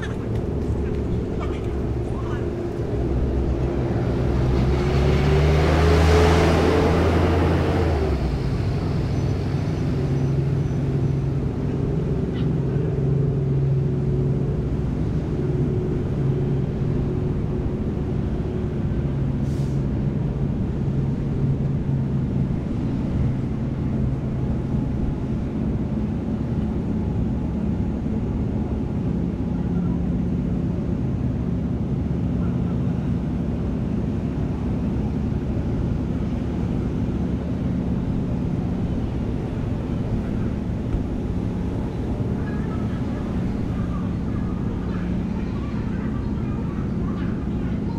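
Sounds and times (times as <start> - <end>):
ship machinery rumble: 0.0 - 47.9.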